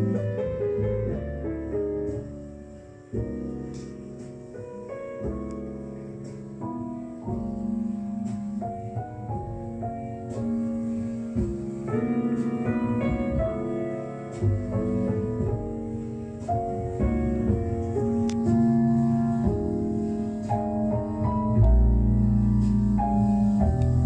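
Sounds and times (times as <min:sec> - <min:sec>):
piano music from loudspeakers: 0:00.0 - 0:24.0.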